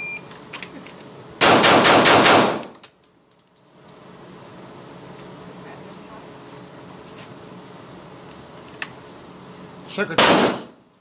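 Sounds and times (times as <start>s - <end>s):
pistol shots indoors: 1.4s - 2.7s, 10.2s - 10.7s.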